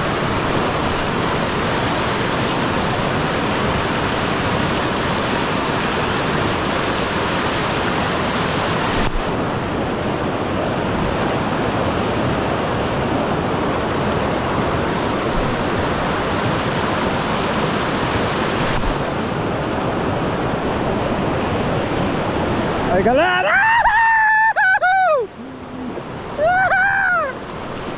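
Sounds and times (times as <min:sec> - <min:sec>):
river rapids rushing: 0:00.0 - 0:27.9.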